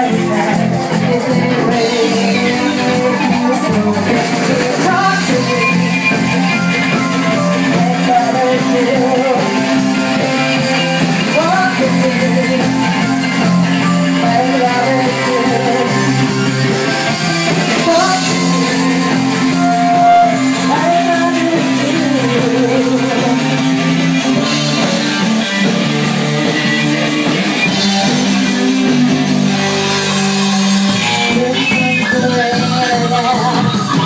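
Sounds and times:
woman singing into microphone: 0:00.0 - 0:06.0, 0:07.7 - 0:09.6, 0:11.3 - 0:12.8, 0:14.2 - 0:16.1, 0:17.8 - 0:23.5, 0:30.4 - 0:34.0
electric guitar: 0:00.0 - 0:34.0.

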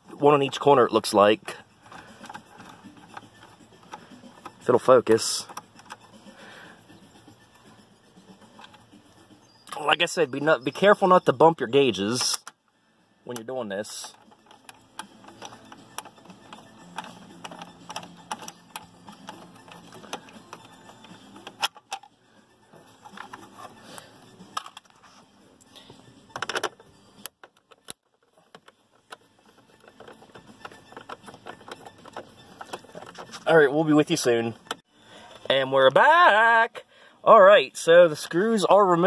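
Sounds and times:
hand tools clicking and knocking: 0:00.1 - 0:06.3, 0:13.3 - 0:22.1, 0:22.9 - 0:25.0, 0:26.3 - 0:34.8.

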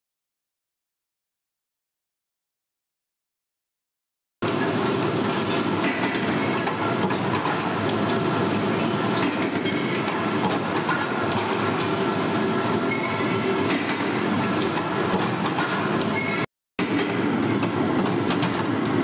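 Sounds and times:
factory machinery clatter: 0:04.4 - 0:19.0
faint high squeals: 0:12.8 - 0:13.5.

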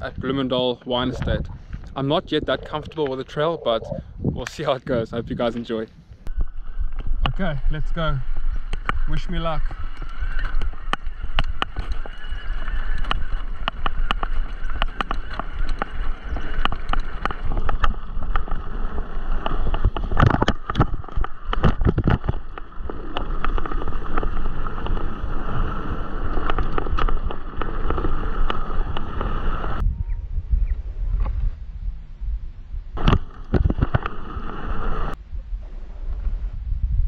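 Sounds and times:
bike tyres rumbling on dirt: 0:06.3 - 0:29.8
bike rattles and knocks: 0:08.6 - 0:29.5.

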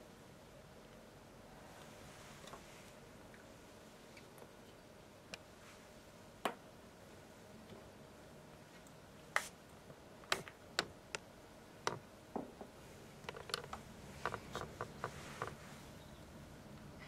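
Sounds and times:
small clicks and taps: 0:13.2 - 0:15.6.

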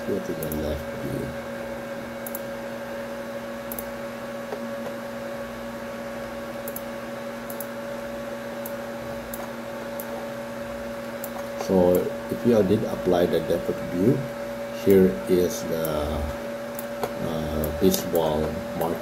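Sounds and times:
electrical hum with hiss: 0:00.0 - 0:19.0.

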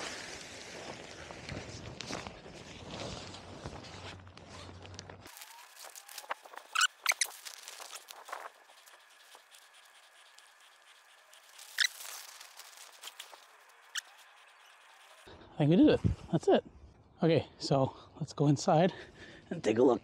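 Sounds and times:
tarp fabric rustling: 0:00.0 - 0:09.8, 0:11.3 - 0:13.8
short sharp squeaks: 0:05.3 - 0:15.3.

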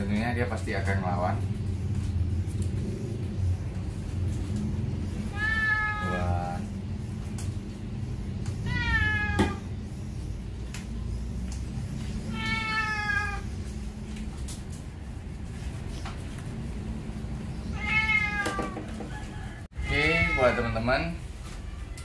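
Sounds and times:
cat meowing: 0:05.2 - 0:06.6, 0:08.6 - 0:09.6, 0:12.2 - 0:13.5, 0:17.6 - 0:18.8, 0:19.8 - 0:20.9.

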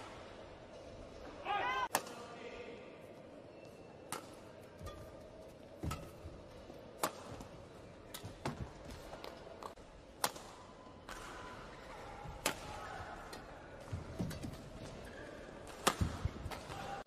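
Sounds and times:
rackets hitting shuttlecock: 0:04.0 - 0:15.0, 0:15.6 - 0:17.0.

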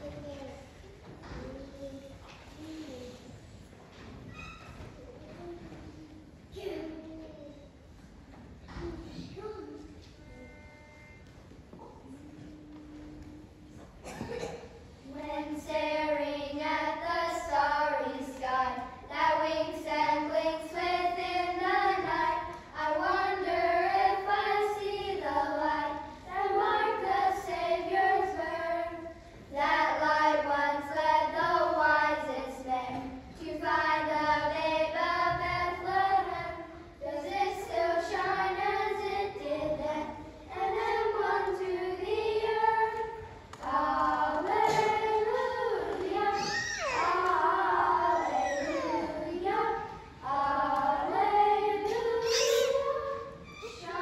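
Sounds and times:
children singing: 0:15.1 - 0:54.0.

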